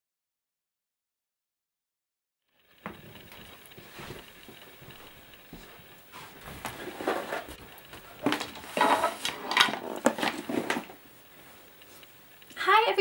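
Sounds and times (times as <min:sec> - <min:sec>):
knocks and rustles: 0:02.7 - 0:11.0.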